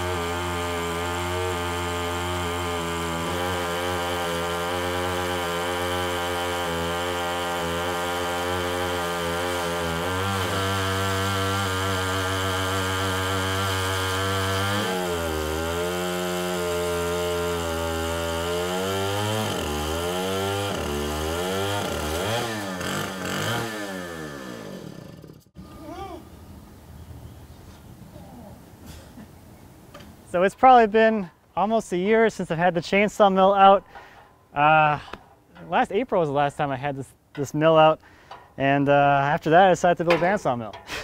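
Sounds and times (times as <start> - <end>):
chainsaw cutting through log: 0.0 - 25.6.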